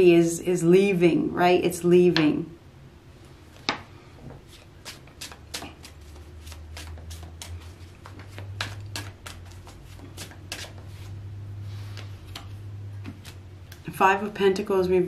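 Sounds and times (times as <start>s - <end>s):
faint low hum: 0.0s - 15.0s
cards being shuffled: 3.6s - 11.2s, 11.8s - 13.9s.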